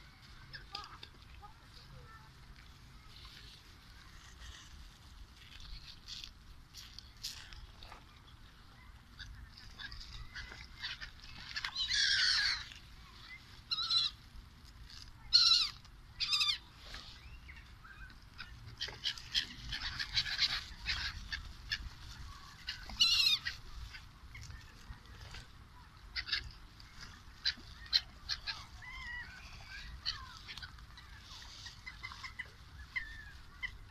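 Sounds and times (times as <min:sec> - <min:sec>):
gulls calling in flight: 0:09.6 - 0:14.2, 0:15.3 - 0:24.8, 0:26.1 - 0:33.9.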